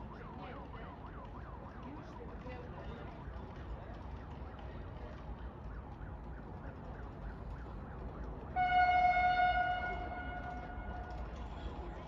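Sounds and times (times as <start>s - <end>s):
loud train horn: 8.6s - 11.0s.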